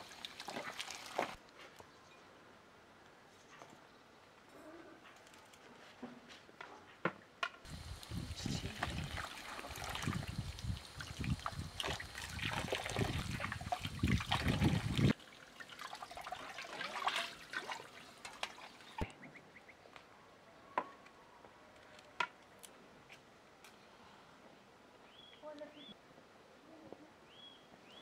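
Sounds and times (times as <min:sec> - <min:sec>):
water pouring and splashing: 0:00.0 - 0:01.4, 0:07.7 - 0:19.1.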